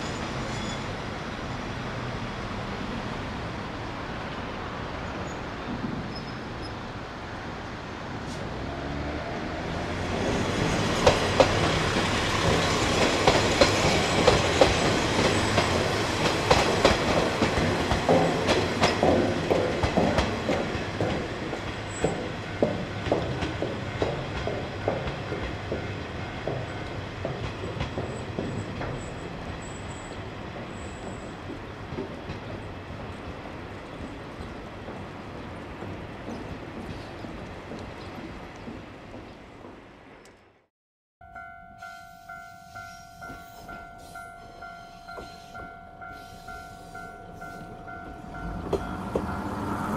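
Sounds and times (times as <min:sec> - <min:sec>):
train wheels clicking over rail joints: 0:10.1 - 0:40.5.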